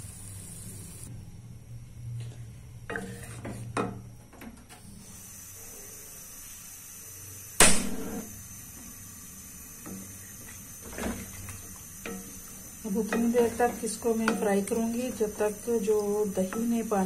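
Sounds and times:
food frying hiss: 0:00.0 - 0:01.1, 0:08.3 - 0:17.0
utensils knocking on metal pan: 0:12.9 - 0:15.0, 0:16.2 - 0:17.0.

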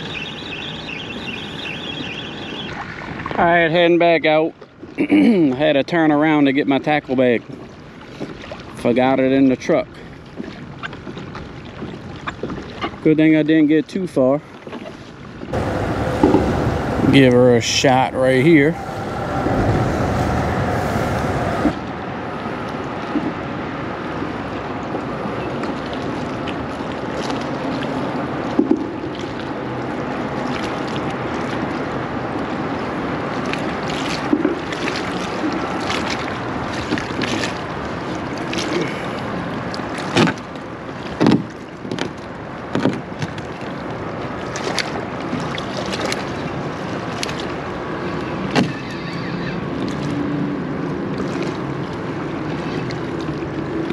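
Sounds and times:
water lapping against kayak hull: 0:06.4 - 0:13.2, 0:14.0 - 0:21.8, 0:22.4 - 0:53.9
knocks and splashes: 0:15.7 - 0:17.2, 0:24.2 - 0:47.6, 0:49.8 - 0:53.9.

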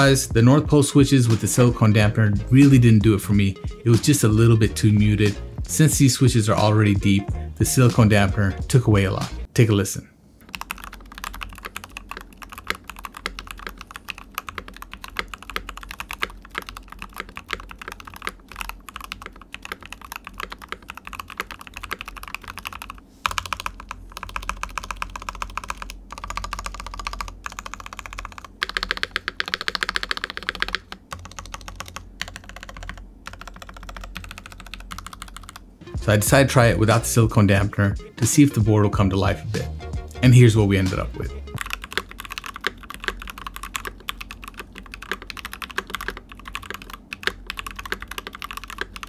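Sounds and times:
muted keyboard typing: 0:10.4 - 0:35.7, 0:41.6 - 0:49.0.

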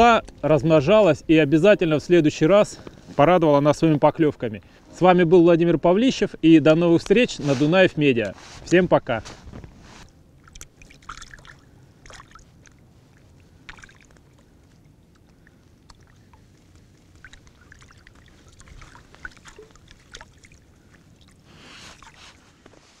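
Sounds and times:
water sloshing and splashing: 0:09.3 - 0:23.0.

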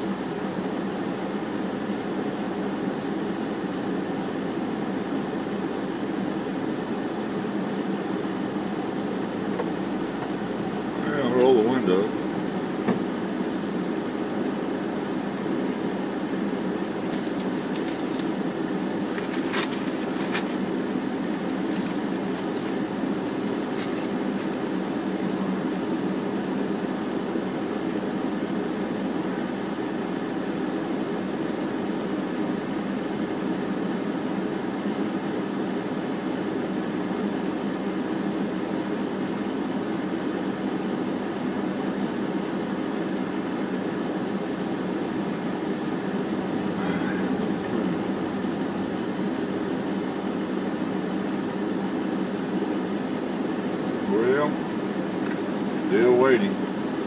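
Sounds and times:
car cabin hum: 0:05.7 - 0:26.6, 0:44.8 - 0:50.1, 0:54.1 - 0:56.6.

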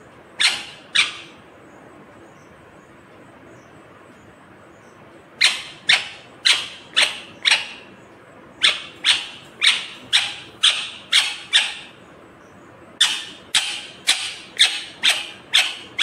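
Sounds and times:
parakeet shrill calls: 0:00.4 - 0:01.4, 0:05.4 - 0:07.9, 0:08.6 - 0:12.0, 0:13.0 - 0:16.0.

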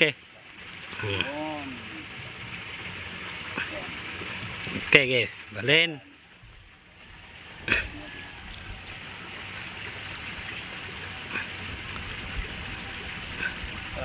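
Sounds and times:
steady outdoor hiss: 0:00.0 - 0:14.0
faint ticks: 0:10.0 - 0:10.3.

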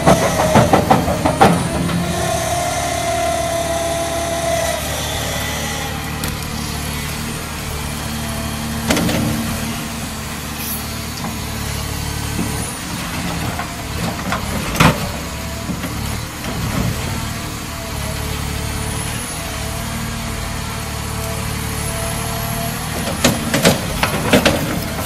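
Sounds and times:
excavator diesel engine running: 0:00.0 - 0:25.0.

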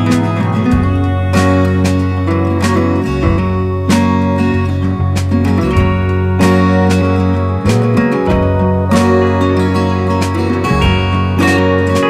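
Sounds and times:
strummed guitar music: 0:00.0 - 0:12.0.

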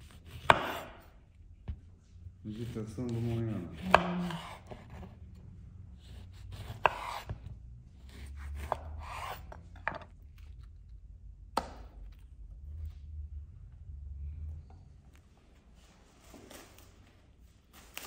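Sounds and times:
knife slicing lemon: 0:00.0 - 0:01.1, 0:02.5 - 0:05.2, 0:06.0 - 0:07.4, 0:08.0 - 0:09.6.

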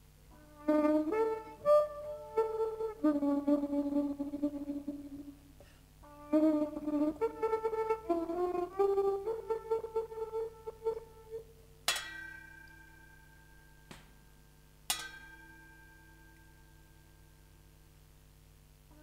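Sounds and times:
brass instrument slow melody: 0:00.3 - 0:05.3, 0:06.0 - 0:11.6
bell-like metallic rings: 0:11.9 - 0:17.7.

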